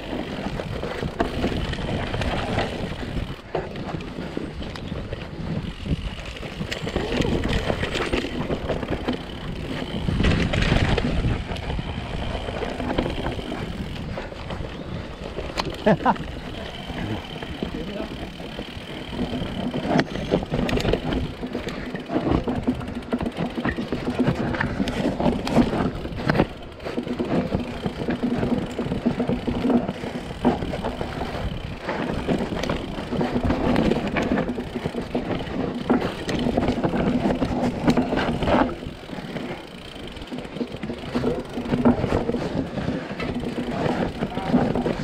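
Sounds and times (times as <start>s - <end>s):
bike knocking and rattling: 0.0s - 45.0s
bike tyres rolling on dirt: 0.0s - 45.0s.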